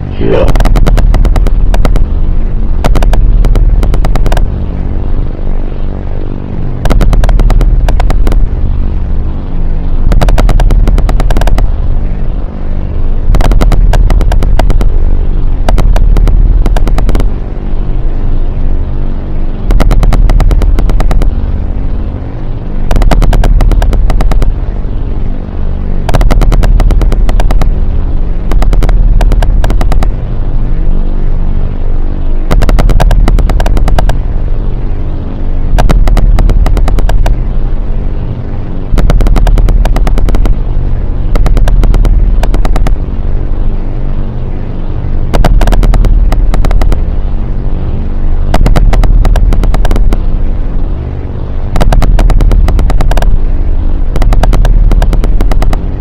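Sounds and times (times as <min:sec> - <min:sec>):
distorted low drone: 0:00.0 - 0:56.0
rapid crackling clicks: 0:00.0 - 0:56.0.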